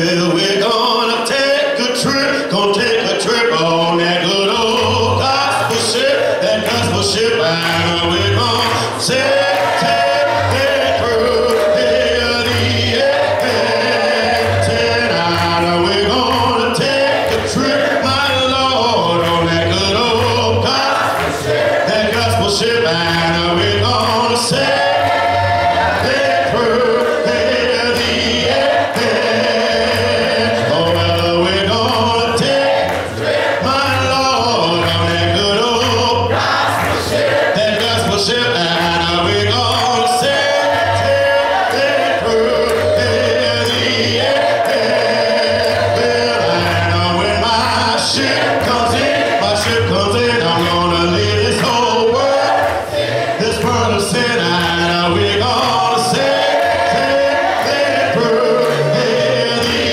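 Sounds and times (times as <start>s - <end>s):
congregation singing a cappella: 0.0s - 59.9s
man singing through a microphone: 0.0s - 59.9s.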